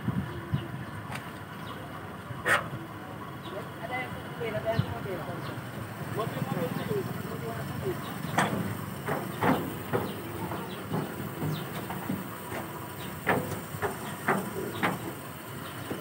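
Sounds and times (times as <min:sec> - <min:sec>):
steady hiss: 0:01.2 - 0:16.0
wooden coffin knocking and scraping: 0:08.2 - 0:15.1.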